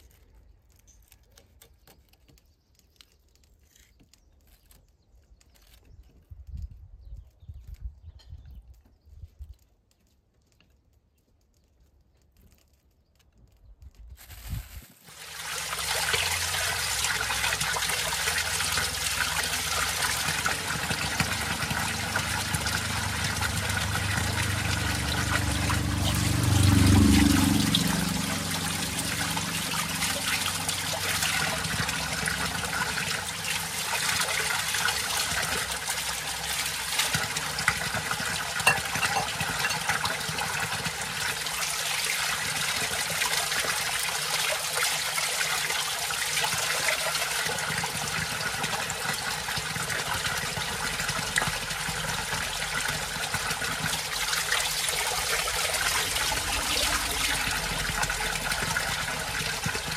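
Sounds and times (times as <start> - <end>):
water pouring onto stone: 14.3 - 59.9
fish and plate being rinsed: 15.0 - 59.9.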